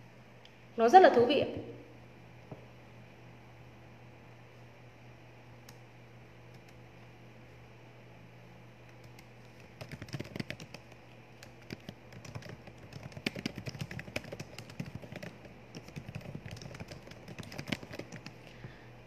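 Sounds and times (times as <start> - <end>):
keyboard typing clicks: 8.9 - 18.4.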